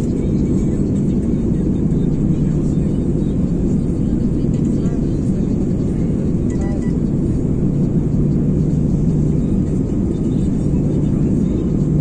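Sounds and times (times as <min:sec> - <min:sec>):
aircraft engines rumbling: 0:00.0 - 0:12.0
constant low hum: 0:00.0 - 0:12.0.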